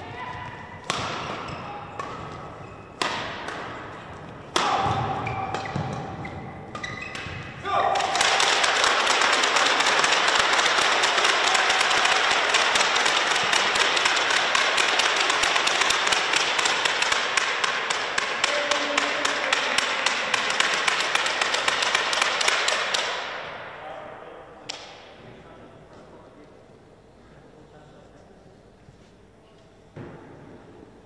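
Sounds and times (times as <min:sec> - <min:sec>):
spectators applauding: 0:08.0 - 0:17.4.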